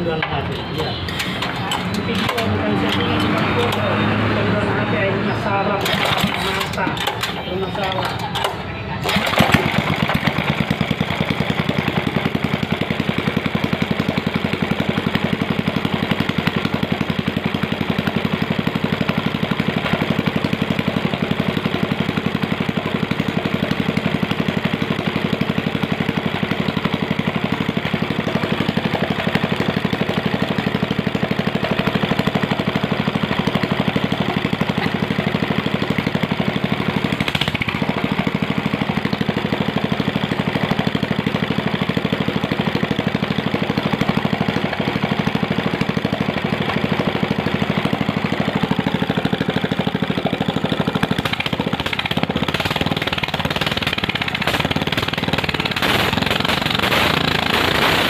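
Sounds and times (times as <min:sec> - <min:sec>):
small petrol engine running: 0:00.0 - 0:58.0.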